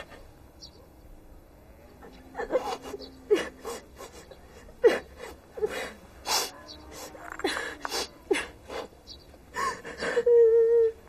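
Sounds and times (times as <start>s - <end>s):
woman sobbing: 2.3s - 8.9s, 9.5s - 11.0s.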